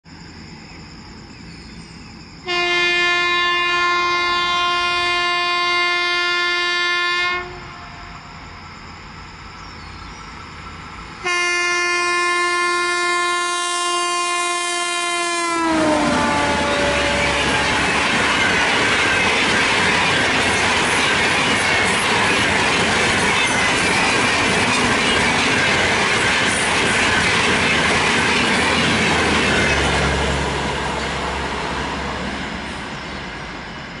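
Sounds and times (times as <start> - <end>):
train wheels rolling on rails: 15.4 - 34.0.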